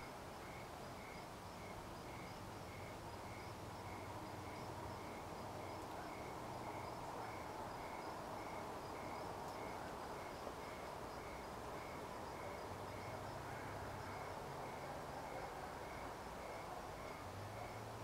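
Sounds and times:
cricket chirping: 0.0 - 18.0
faint outdoor hiss: 0.0 - 18.0.

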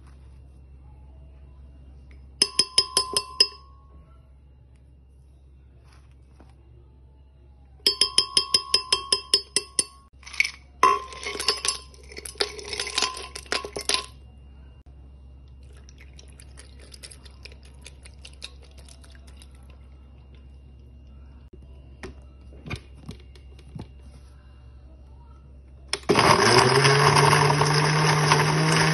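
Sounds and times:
metal spoon clinking on glass jar: 2.4 - 3.8, 7.9 - 14.2
liquid trickling into jar: 15.6 - 20.2.

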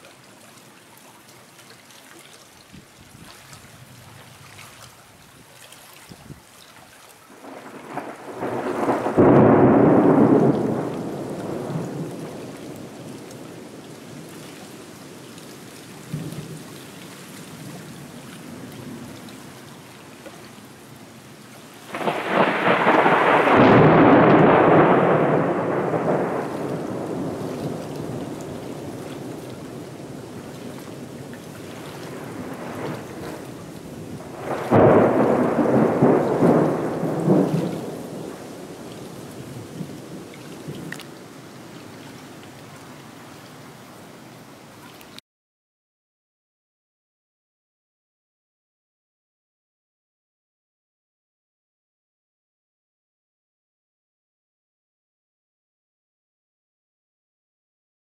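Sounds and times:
steady rain: 0.0 - 45.2
thunder rumbling: 7.4 - 14.3, 21.9 - 40.9.

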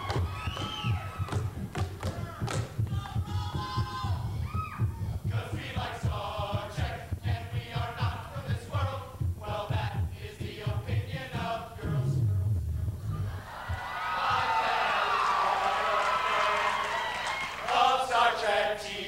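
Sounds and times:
low thumping beat: 0.0 - 13.9
men singing together: 5.0 - 12.3, 17.6 - 19.0.

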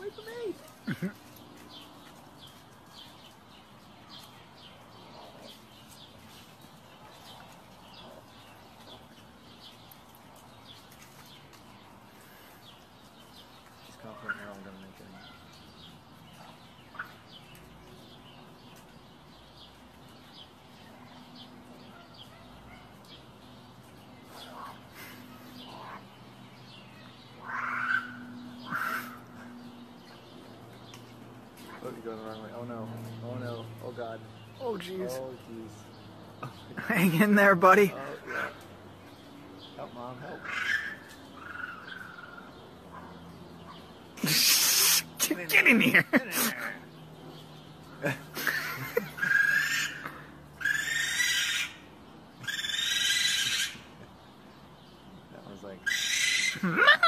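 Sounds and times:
raccoons calling: 0.0 - 57.0
harsh animal calls: 24.2 - 26.2, 27.0 - 30.2, 40.1 - 47.0, 47.9 - 54.1, 55.7 - 57.0.

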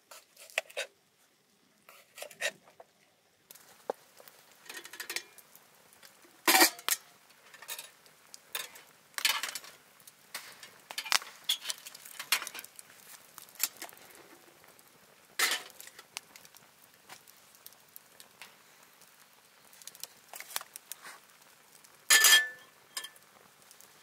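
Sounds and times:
hard objects clinking and clattering: 22.1 - 23.2.

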